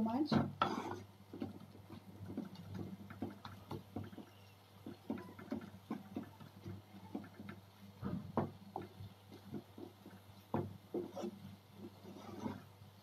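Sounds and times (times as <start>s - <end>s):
wooden spatula scraping frying pan: 0.3s - 7.6s, 8.4s - 12.8s.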